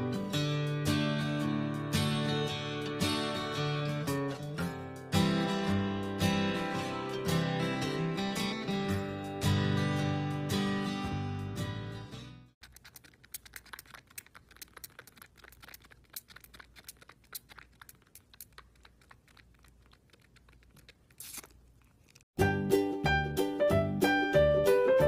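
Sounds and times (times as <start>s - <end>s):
music: 0.0s - 12.6s, 22.4s - 25.0s
kitten suckling on a bottle: 12.6s - 22.3s
background music: 22.4s - 25.0s.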